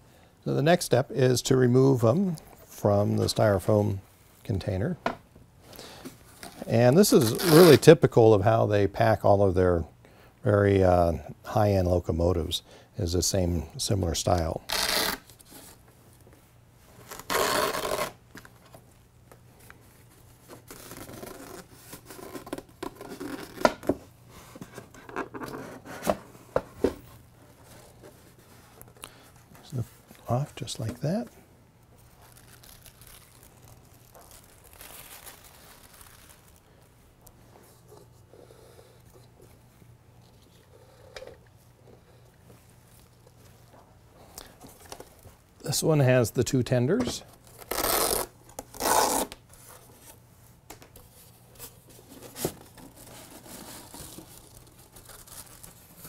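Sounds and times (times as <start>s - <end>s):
strap ripping open: 6.4s - 7.8s, 14.7s - 15.4s, 17.0s - 18.2s, 20.6s - 24.0s, 32.1s - 36.7s, 47.6s - 49.4s.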